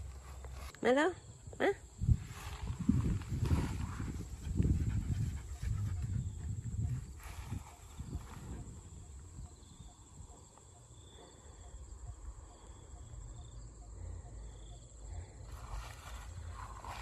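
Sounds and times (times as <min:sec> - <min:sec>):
wind rumble on microphone: 0:00.0 - 0:11.0, 0:15.2 - 0:17.0
insects droning: 0:00.0 - 0:17.0
rustling through grass: 0:02.0 - 0:04.8, 0:06.8 - 0:09.1, 0:15.5 - 0:17.0.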